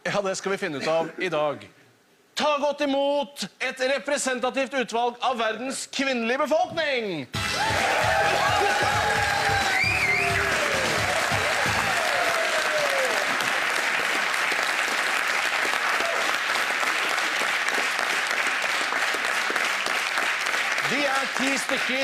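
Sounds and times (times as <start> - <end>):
studio audience applauding: 7.4 - 22.0.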